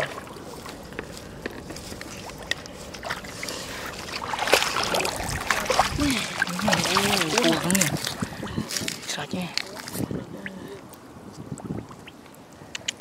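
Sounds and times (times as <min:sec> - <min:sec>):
water sloshing and splashing: 0:00.0 - 0:10.7
small sharp clicks: 0:12.7 - 0:13.0.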